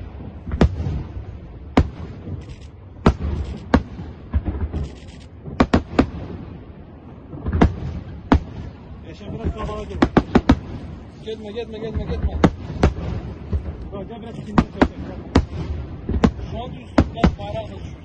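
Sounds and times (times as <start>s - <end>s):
low rumble: 0.0s - 18.0s
firework shells bursting: 0.4s - 6.4s, 7.3s - 11.2s.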